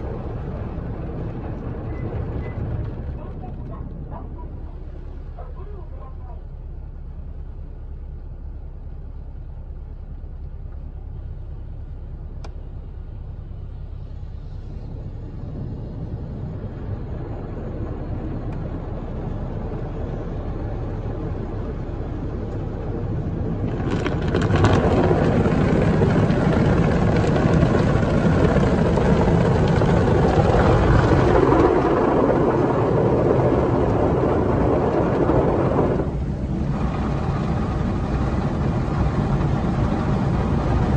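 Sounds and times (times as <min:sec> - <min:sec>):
low machine hum: 0:00.0 - 0:40.9
car wash rushing spray: 0:13.3 - 0:40.9.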